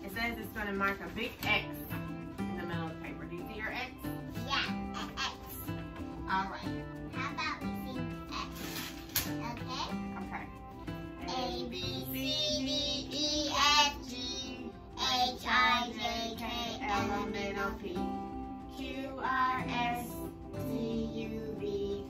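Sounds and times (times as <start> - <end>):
music playing: 0.0 - 22.0
girl singing: 11.2 - 22.0.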